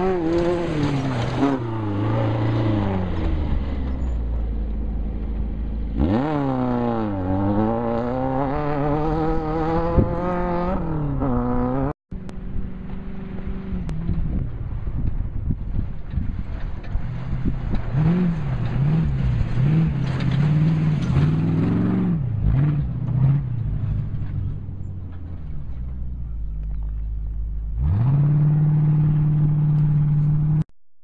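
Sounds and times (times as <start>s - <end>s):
buggy engine revving hard: 0.0s - 4.1s, 5.7s - 12.0s, 16.9s - 24.3s, 27.7s - 30.6s.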